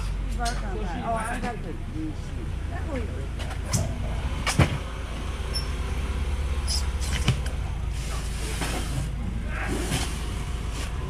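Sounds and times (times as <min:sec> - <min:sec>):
low rumble: 0:01.2 - 0:11.0.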